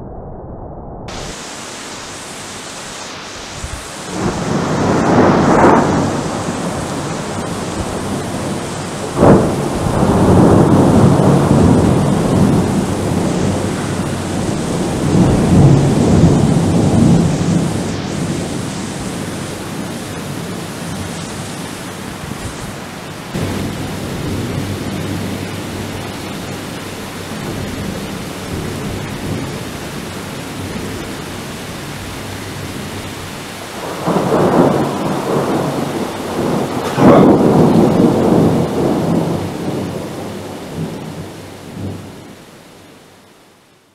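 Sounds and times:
steady rain: 1.1s - 43.9s
thunder rumbling: 3.2s - 42.3s
loud thunderclaps: 3.6s - 21.0s, 23.4s - 31.1s, 33.7s - 42.1s.

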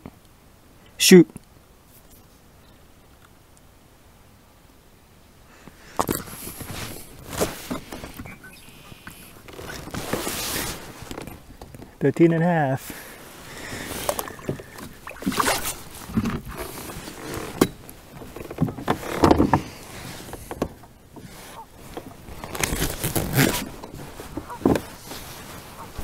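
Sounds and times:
knocks and scrapes in plastic kayak: 5.9s - 12.0s, 12.9s - 26.0s.

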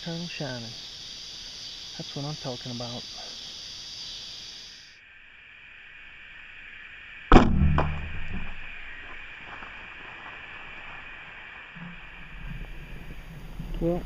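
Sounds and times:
insect chorus: 0.0s - 14.0s
loud knock: 7.3s - 8.6s
low rumbling: 7.3s - 14.0s.

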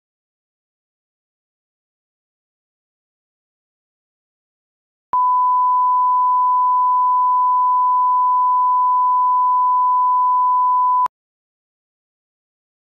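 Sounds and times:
test-tone beep: 5.2s - 11.1s.

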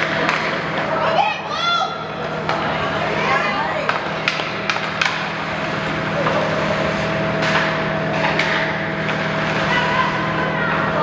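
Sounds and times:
sticks clacking on puck: 0.0s - 0.9s, 3.8s - 5.4s, 7.4s - 9.2s
steady low hum: 0.0s - 11.0s.

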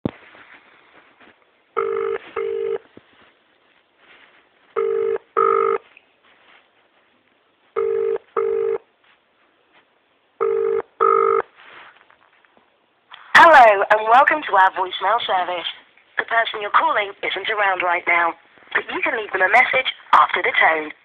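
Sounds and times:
telephone ringing tone: 1.8s - 2.8s, 4.8s - 5.8s, 7.8s - 8.8s, 10.4s - 11.5s.

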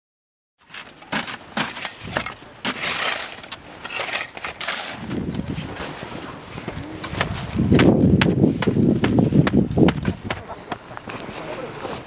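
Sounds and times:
snow shovels scraping snow: 0.6s - 7.7s, 10.0s - 12.0s.

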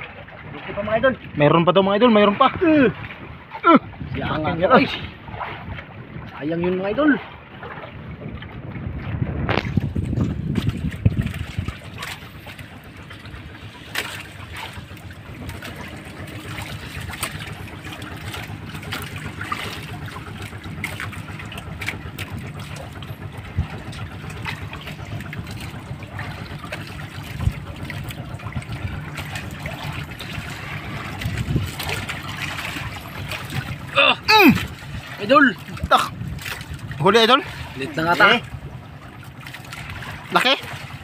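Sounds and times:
water sloshing and trickling: 0.0s - 41.0s
steady low hum: 8.8s - 41.0s.

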